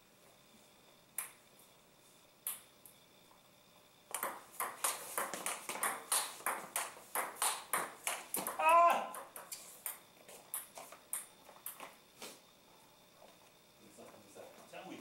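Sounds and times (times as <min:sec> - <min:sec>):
table tennis ball clicking: 0:04.1 - 0:11.9.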